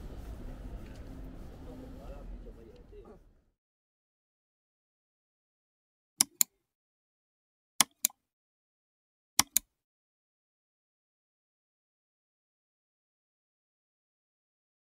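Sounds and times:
sharp double clicks: 6.2 - 6.6, 7.8 - 8.2, 9.4 - 9.7.

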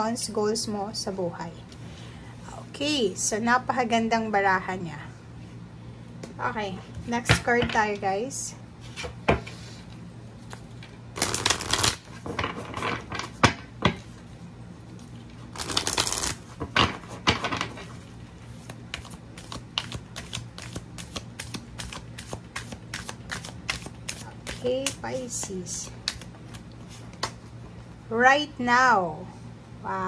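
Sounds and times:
cards riffle shuffling: 11.2 - 12.1, 15.5 - 16.4, 18.6 - 27.4.

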